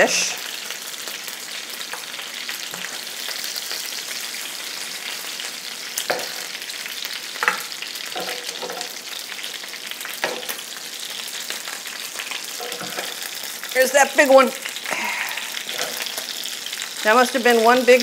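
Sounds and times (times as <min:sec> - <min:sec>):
chicken sizzling in skillet: 0:00.0 - 0:18.0
tongs knocking: 0:12.6 - 0:13.1.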